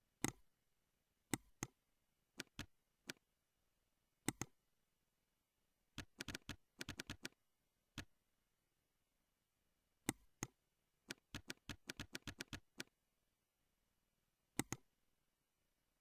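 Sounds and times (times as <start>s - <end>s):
mouse clicks: 0.2s - 0.4s, 2.4s - 3.2s, 4.2s - 4.6s, 6.0s - 7.4s, 10.0s - 12.9s, 14.6s - 14.9s
keyboard typing: 2.4s - 3.2s, 6.0s - 7.4s, 10.1s - 12.9s, 14.6s - 14.9s.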